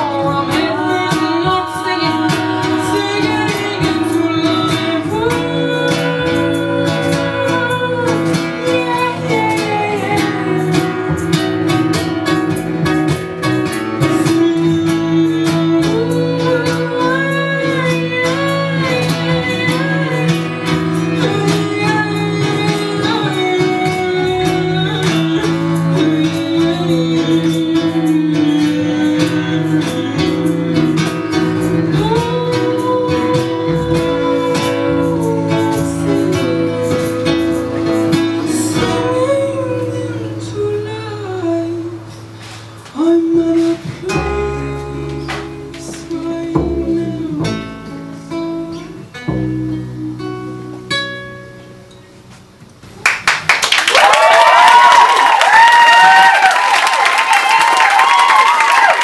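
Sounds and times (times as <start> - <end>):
women singing: 0.0 - 11.6, 14.0 - 42.3, 42.9 - 48.0
strummed acoustic guitar: 0.0 - 52.9
upright double bass: 0.0 - 53.1.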